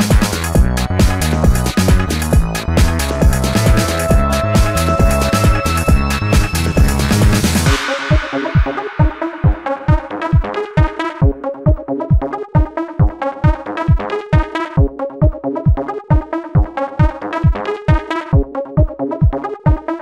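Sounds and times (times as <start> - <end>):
steady kick drum: 0.0 - 19.9
electronic dance music: 0.0 - 20.0
repeating synth chords: 0.0 - 20.0.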